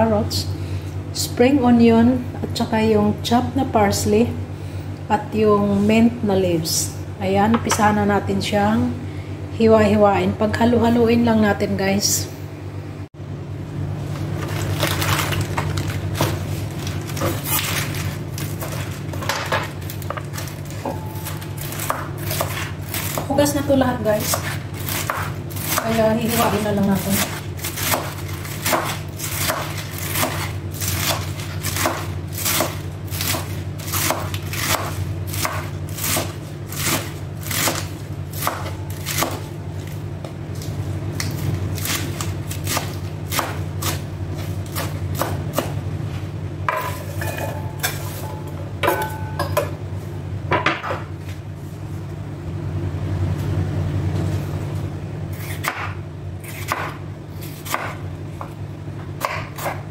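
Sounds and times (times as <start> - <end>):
steady low hum: 0.0 - 59.9
knife chopping lettuce on wood: 16.1 - 23.4, 24.2 - 39.5, 41.2 - 45.8, 55.3 - 58.6, 59.2 - 59.9.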